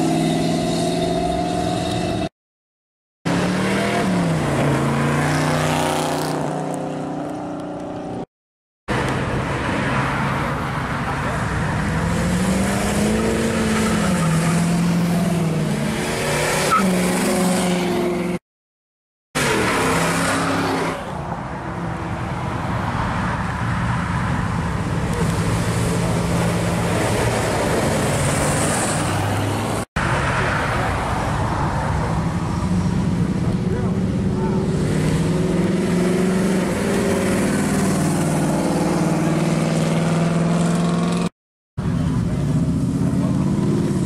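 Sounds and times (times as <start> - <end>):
cars driving past: 19.4 - 44.0.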